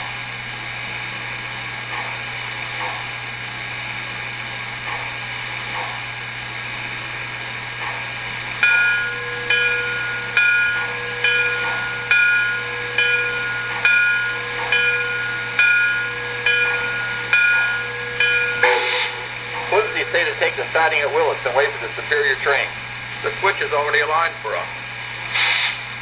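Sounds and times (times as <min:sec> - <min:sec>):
model locomotive bell ringing: 0:08.6 - 0:22.6
steady hiss: 0:18.6 - 0:23.5, 0:25.2 - 0:26.0.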